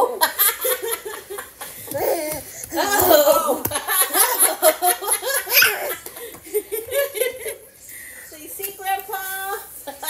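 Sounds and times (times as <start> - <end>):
baby's voice: 1.9 - 3.1
women laughing: 2.8 - 7.6.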